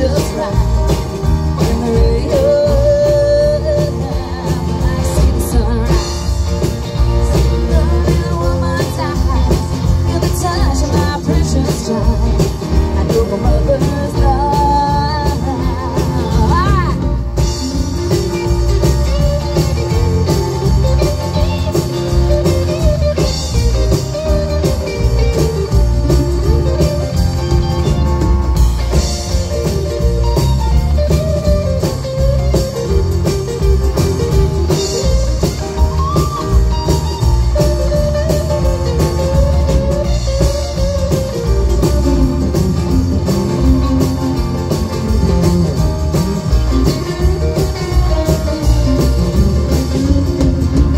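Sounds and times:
drum kit beat: 0.0 - 50.9
guitar lead line: 0.0 - 50.9.

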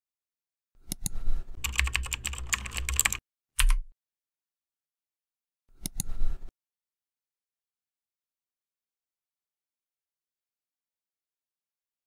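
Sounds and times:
keyboard typing: 1.6 - 3.9.

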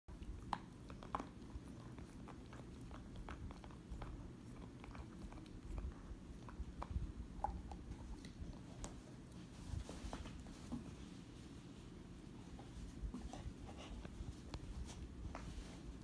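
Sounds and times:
dog chewing and gnawing: 0.1 - 9.4.

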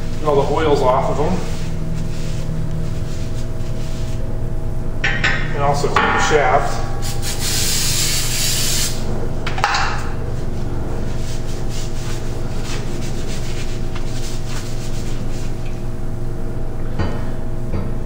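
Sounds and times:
rag wiping metal shaft: 6.1 - 9.1
aerosol spray hissing: 7.0 - 9.0.

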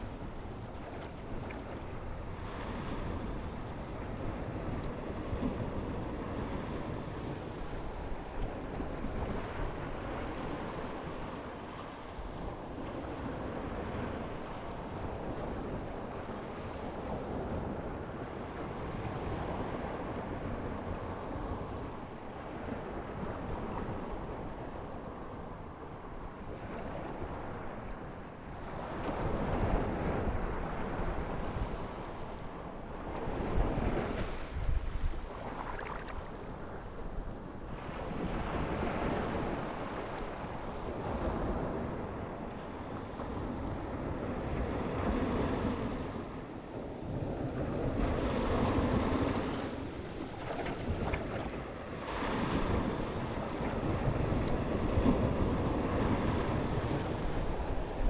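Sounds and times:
waves washing: 29.2 - 58.0.

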